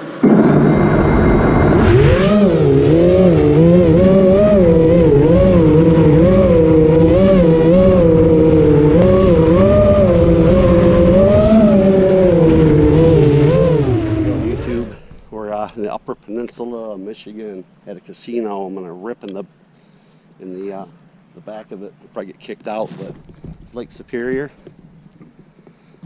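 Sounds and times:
quadcopter motors whining: 0:00.0 - 0:15.8.

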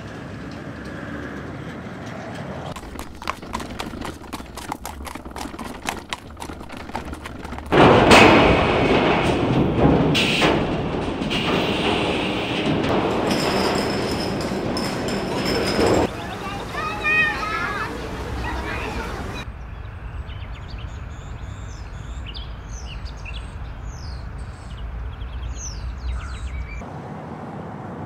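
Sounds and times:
hooves and wheels on cobblestones: 0:00.0 - 0:19.5
dense rushing noise: 0:02.8 - 0:15.1.

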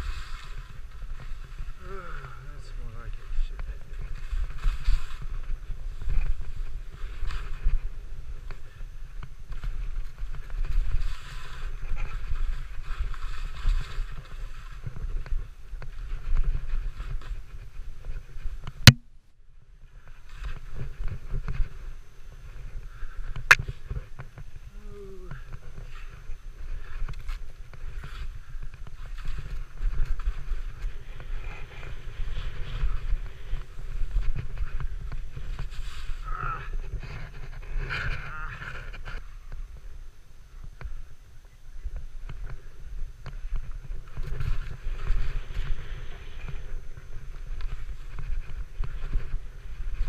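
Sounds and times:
skis sliding over snow: 0:00.0 - 0:18.6, 0:25.4 - 0:39.9, 0:42.2 - 0:50.0
sharp click: 0:18.9 - 0:19.1.

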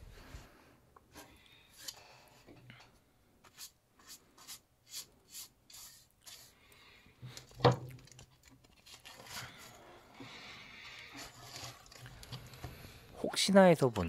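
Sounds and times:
brush bristles scratching paper: 0:03.4 - 0:06.6, 0:11.1 - 0:12.1
soft paper rustling: 0:08.0 - 0:13.0.

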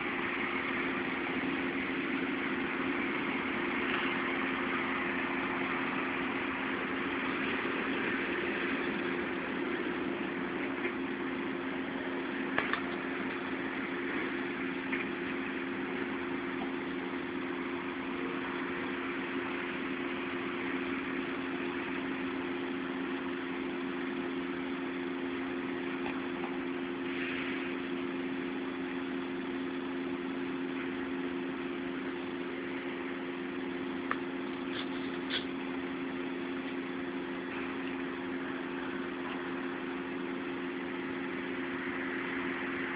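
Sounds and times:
steady mechanical hum: 0:00.0 - 0:42.9.

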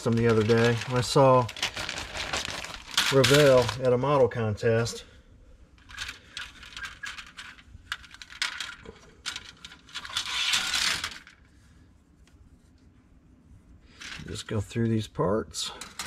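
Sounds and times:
plastic sprues clicking and clattering: 0:00.0 - 0:03.9, 0:05.8 - 0:11.4.

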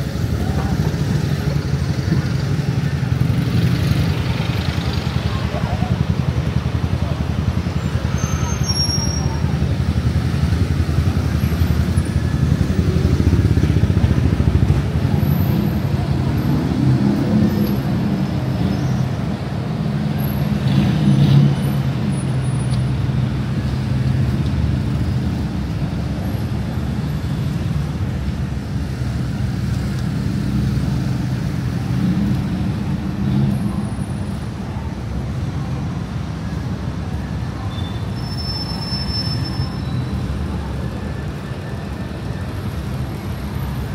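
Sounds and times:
passers-by talking: 0:00.0 - 0:20.6
road traffic rumble: 0:00.0 - 0:43.9
vehicle engine: 0:00.0 - 0:43.9.

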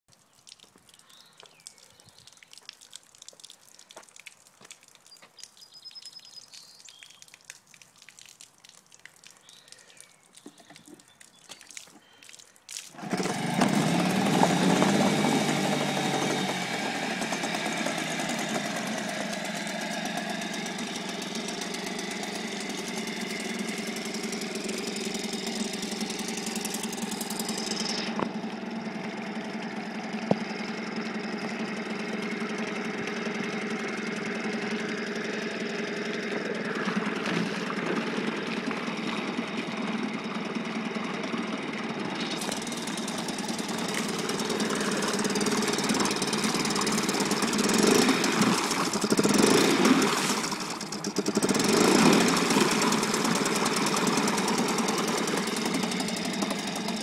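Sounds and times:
water churning in bucket: 0:07.6 - 0:28.6, 0:34.7 - 0:40.1, 0:42.2 - 0:57.0
outboard motor running: 0:12.9 - 0:57.0.

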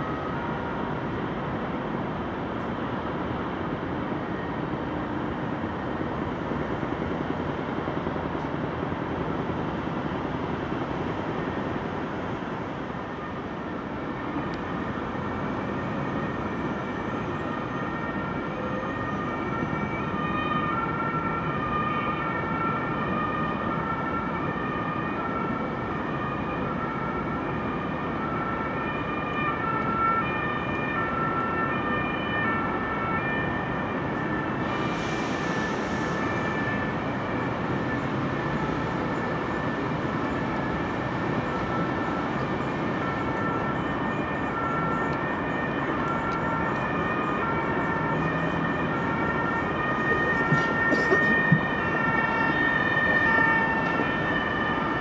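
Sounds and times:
city and railway hum: 0:00.0 - 0:55.0
two-tone emergency siren: 0:00.0 - 0:55.0
brief hiss: 0:34.8 - 0:36.2.

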